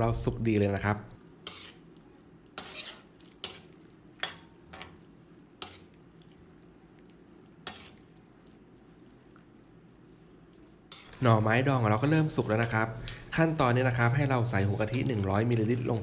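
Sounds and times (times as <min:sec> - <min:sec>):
metal ladle scraping wok: 0:01.4 - 0:01.9, 0:02.6 - 0:04.9, 0:05.6 - 0:05.8, 0:07.6 - 0:08.0, 0:10.9 - 0:11.4.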